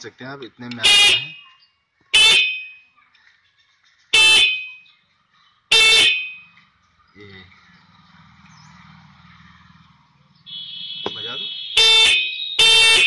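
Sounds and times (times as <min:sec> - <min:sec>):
motorcycle horn honks: 0:00.8 - 0:01.4, 0:10.5 - 0:13.0.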